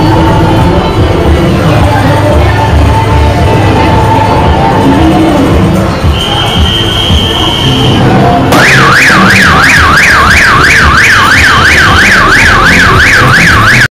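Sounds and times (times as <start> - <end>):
carnival parade music: 0.0 - 13.9
high whistle-like tone: 6.0 - 8.2
siren-like wail sweeping up and down: 8.2 - 13.9.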